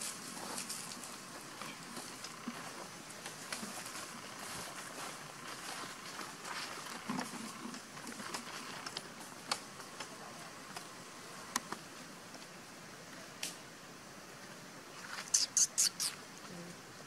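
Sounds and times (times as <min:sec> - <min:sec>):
outdoor hiss: 0:00.0 - 0:17.0.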